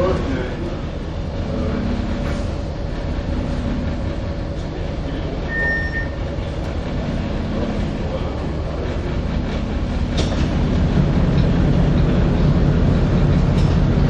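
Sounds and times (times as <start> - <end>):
boat engines rumbling: 0.0 - 14.0
short high tone: 5.5 - 6.2.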